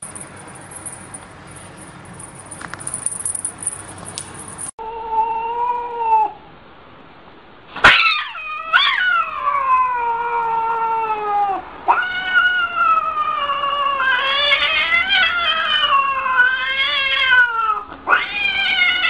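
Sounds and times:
cat yowling: 0:04.8 - 0:06.4, 0:07.8 - 0:19.0.

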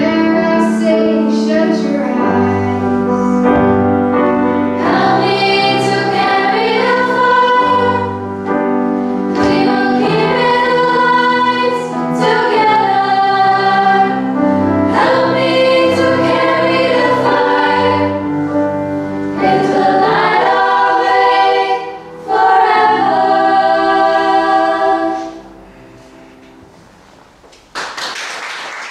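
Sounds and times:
grand piano accompaniment: 0:00.0 - 0:28.9
girls' choir singing: 0:04.7 - 0:08.6, 0:09.2 - 0:25.7.

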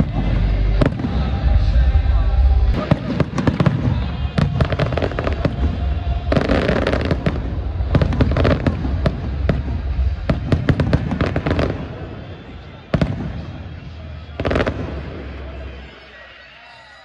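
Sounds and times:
fireworks crackling: 0:02.7 - 0:17.0.

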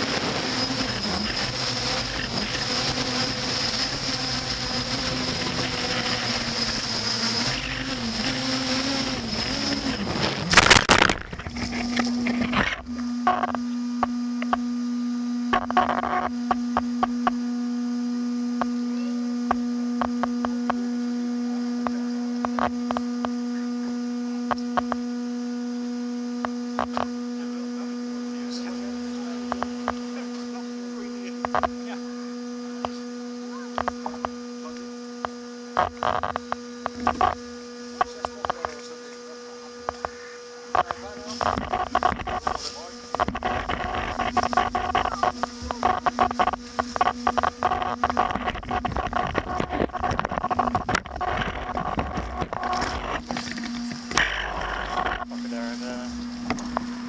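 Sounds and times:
low electric hum: 0:00.0 - 0:57.0.

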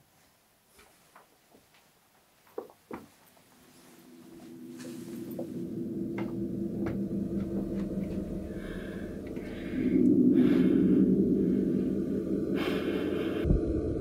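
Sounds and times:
breathy hiss: 0:03.8 - 0:13.8
low ambient drone: 0:03.8 - 0:14.0.

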